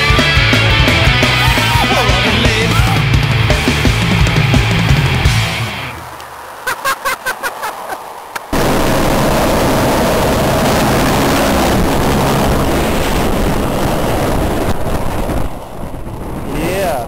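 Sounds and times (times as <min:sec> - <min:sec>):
helicopter engine and rotor roar: 0:08.5 - 0:15.8.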